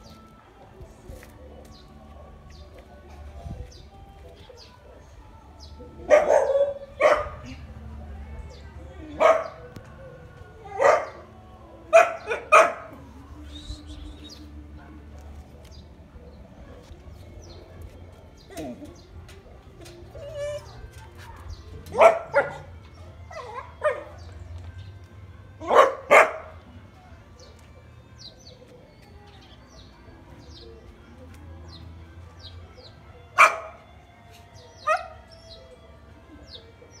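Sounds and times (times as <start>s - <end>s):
dog barking: 6.0s - 7.6s, 9.2s - 9.7s, 10.7s - 11.3s, 11.9s - 13.0s, 21.9s - 22.7s, 25.6s - 26.6s, 33.2s - 33.8s, 34.8s - 35.2s.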